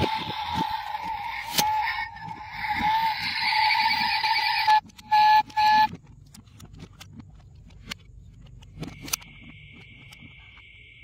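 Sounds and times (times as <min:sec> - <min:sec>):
electronic whirring tone: 0:00.0 - 0:06.0, 0:08.7 - 0:11.0
short horn-like beeps: 0:02.6 - 0:05.9.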